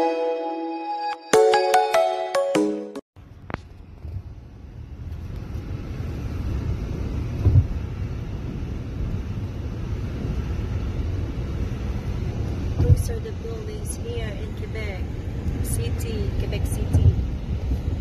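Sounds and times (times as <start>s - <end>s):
road and engine rumble: 3.2s - 18.0s
thump: 7.4s - 7.7s.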